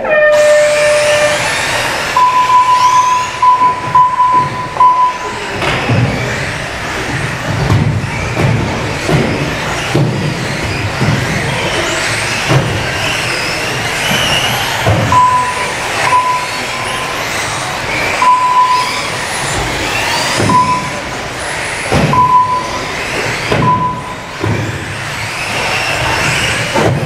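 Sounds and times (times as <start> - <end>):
rc car motors whining: 0.0 - 27.0
short beeps: 2.2 - 5.4, 15.1 - 17.2, 18.2 - 19.1, 20.4 - 21.1, 22.1 - 22.9, 23.6 - 24.3.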